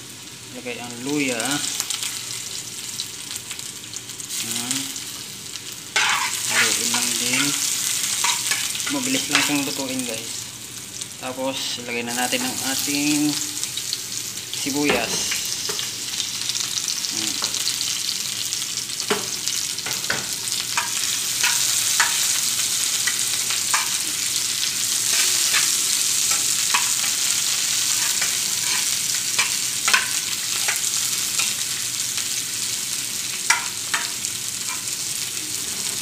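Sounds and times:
vegetables sizzling in oil: 0.0s - 36.0s
spatula scraping a pan: 6.0s - 9.7s, 25.1s - 31.5s.

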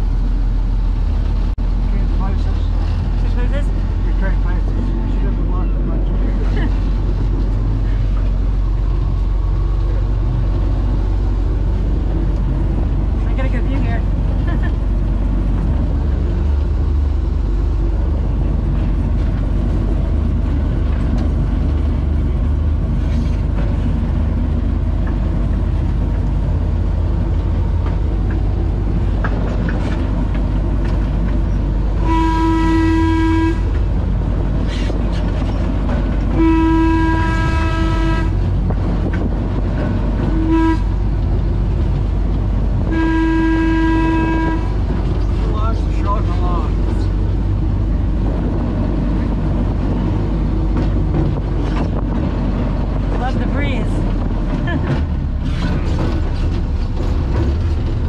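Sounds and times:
diesel locomotive engine running: 0.0s - 58.0s
locomotive horn blasts: 32.0s - 33.8s, 36.3s - 38.4s, 40.2s - 41.0s, 42.8s - 44.8s.

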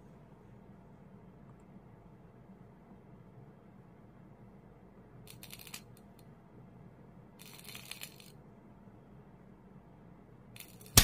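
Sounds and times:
electrical arcing crackle: 10.6s - 11.0s.

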